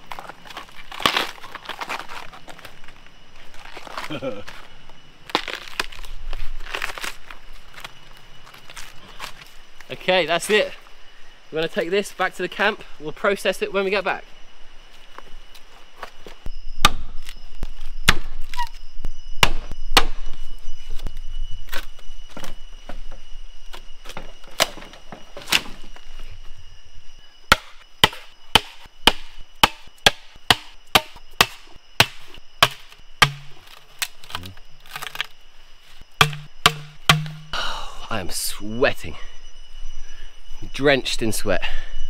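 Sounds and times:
blade chopping: 36.2s - 37.6s.

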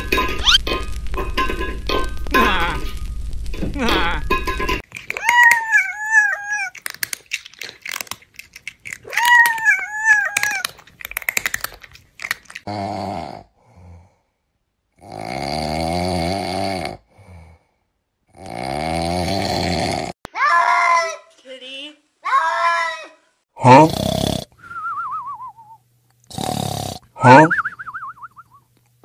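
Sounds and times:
chewing and munching clicks: 4.8s - 12.7s
drawn-out snores: 12.7s - 14.2s, 15.0s - 20.2s, 23.7s - 24.6s, 26.3s - 27.4s.

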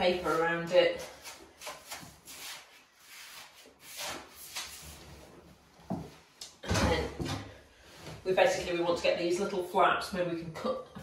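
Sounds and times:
brush swishing over paper: 0.0s - 5.2s.

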